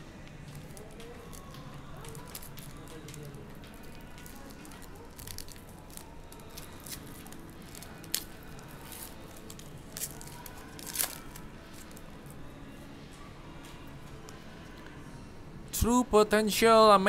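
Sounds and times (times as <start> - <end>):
foil wrapper crinkling and tearing: 0.5 - 12.4.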